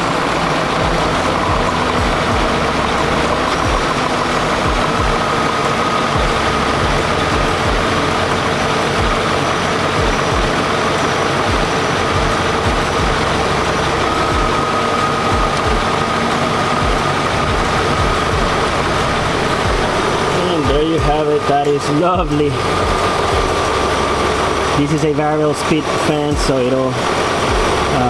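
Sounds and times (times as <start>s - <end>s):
car engine idling: 0.0s - 28.0s
electric fan rushing air: 0.0s - 28.0s.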